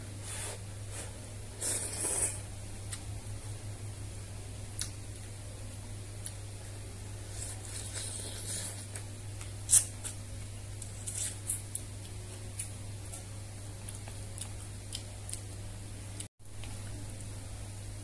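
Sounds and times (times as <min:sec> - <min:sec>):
steady low hum: 0:00.0 - 0:18.0
person slurping noodles: 0:01.6 - 0:02.4.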